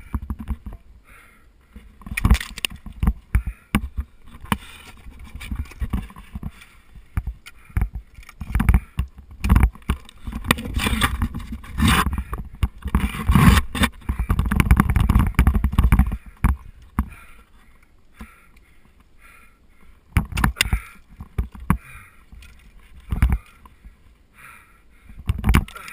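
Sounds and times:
clothing rubbing against camera: 10.2s - 12.3s.

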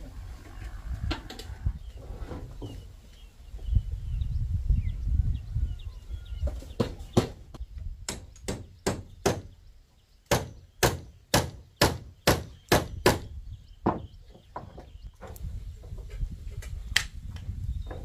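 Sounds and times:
hammer striking nails: 8.1s - 9.5s, 10.3s - 13.3s.

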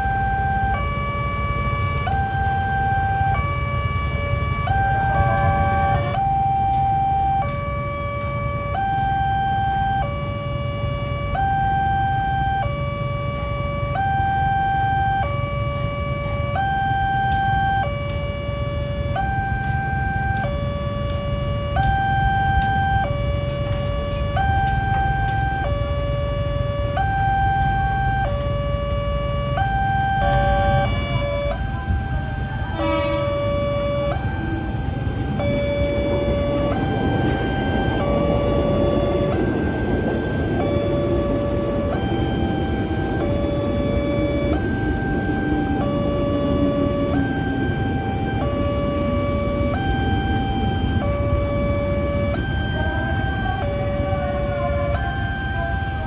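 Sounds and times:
level crossing two-tone alarm: 0.0s - 56.0s
low rumble of engines: 0.0s - 56.0s
second alarm: 0.0s - 56.0s.

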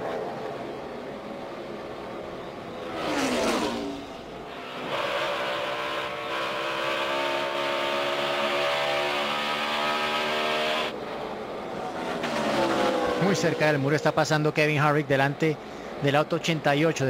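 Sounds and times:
race cars passing by: 0.0s - 17.0s
car engine accelerating: 2.6s - 11.0s, 11.6s - 14.1s.

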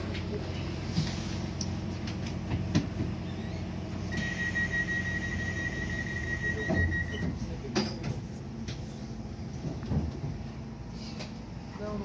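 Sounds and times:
train interior low hum: 0.0s - 12.0s
high electronic tone: 4.1s - 7.3s.

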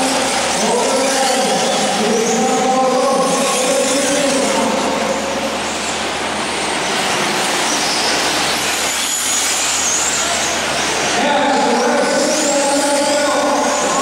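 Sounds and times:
high motor whine: 0.0s - 14.0s
rc trucks buzzing at high revs: 5.6s - 14.0s.

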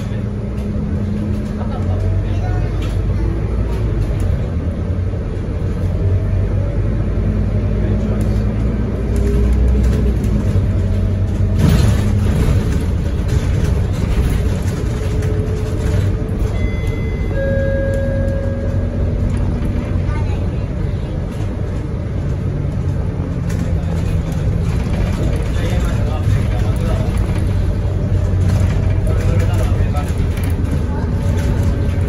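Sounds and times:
bus diesel engine droning: 0.0s - 32.0s
road noise: 0.0s - 32.0s
short high tones: 16.6s - 19.1s.

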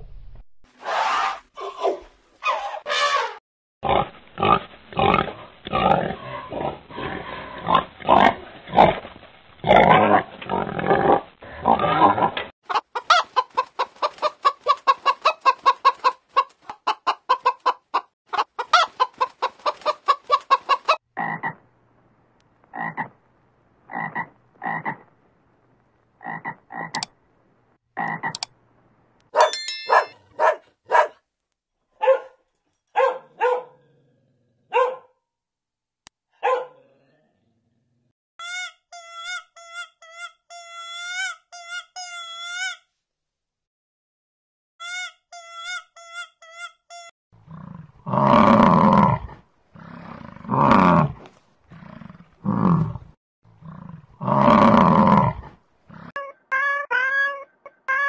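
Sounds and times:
frog croaking: 23.9s - 25.0s.

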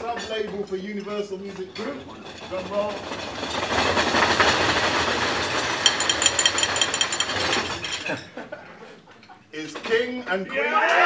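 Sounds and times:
people drumming on wooden tables: 2.1s - 8.1s.

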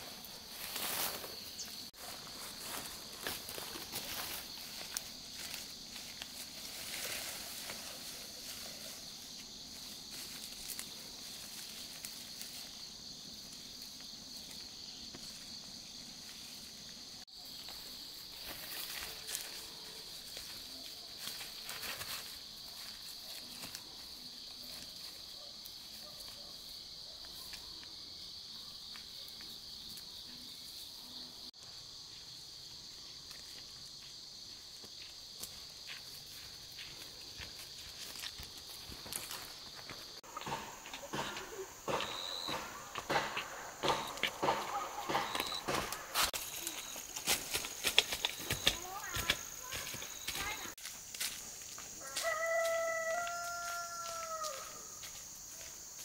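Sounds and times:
insects chirring: 0.0s - 56.0s.

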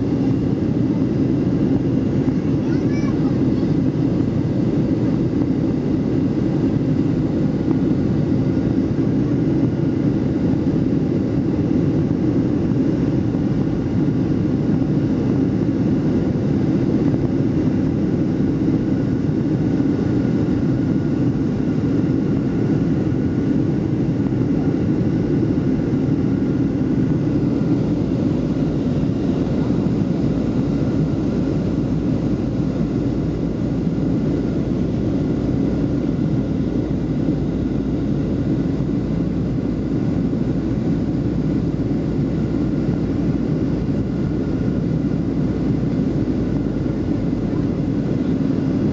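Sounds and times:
airliner cabin engine roar: 0.0s - 48.9s
faint steady whine: 0.0s - 48.9s.

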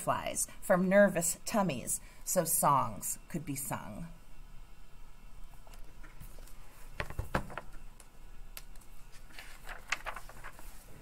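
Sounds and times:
paper page rustling: 8.8s - 11.0s.

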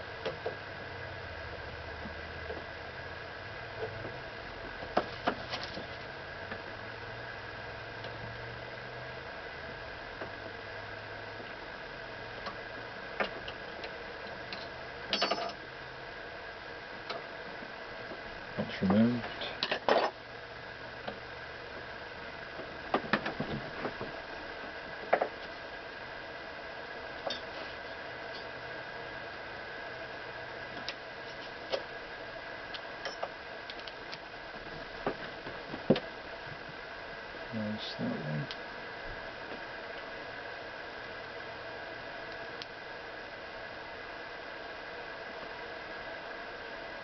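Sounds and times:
steady background hiss: 0.0s - 47.0s
metal tools clicking and tapping: 14.5s - 15.6s.

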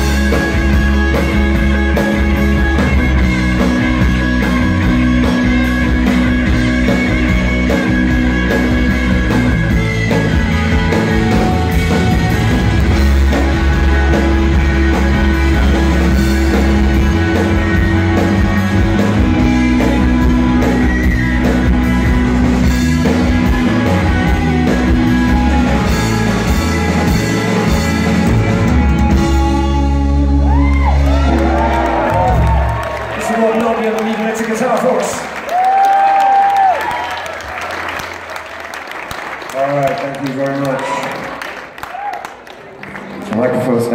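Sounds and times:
bass guitar: 0.0s - 33.8s
electric guitars: 0.0s - 41.1s
drums: 0.0s - 41.8s.

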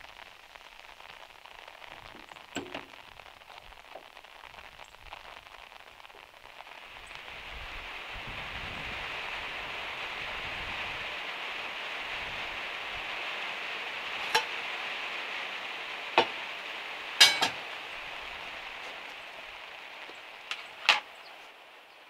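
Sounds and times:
rain on a metal roof: 0.0s - 22.0s
cookware clinking and knocking: 17.2s - 17.6s.

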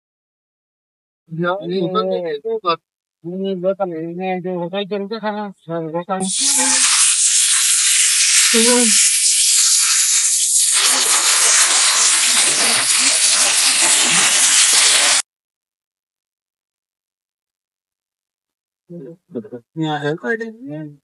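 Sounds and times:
loud hissing rush of noise: 6.2s - 15.2s
short voice: 18.9s - 20.7s.

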